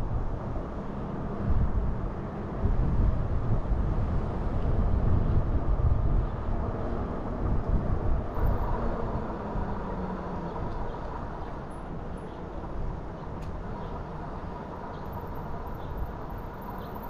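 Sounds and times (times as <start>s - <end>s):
wind buffeting microphone: 1.3s - 11.4s.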